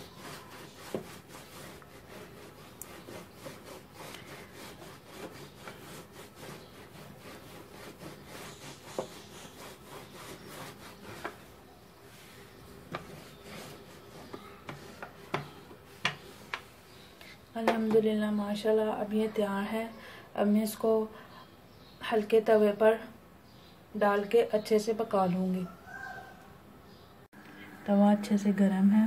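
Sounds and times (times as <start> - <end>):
rolling pin scraping over dough: 0.0 - 17.9.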